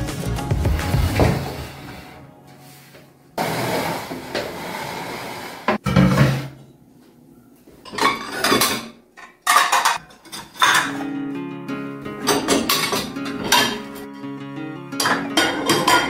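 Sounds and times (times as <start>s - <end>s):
ceramic plates clinking: 7.9s - 11.0s, 12.3s - 13.9s, 15.0s - 16.0s.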